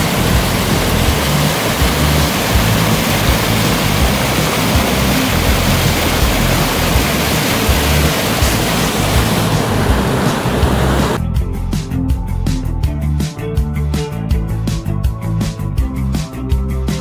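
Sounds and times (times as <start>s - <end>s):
water rushing over boulders: 0.0s - 11.2s.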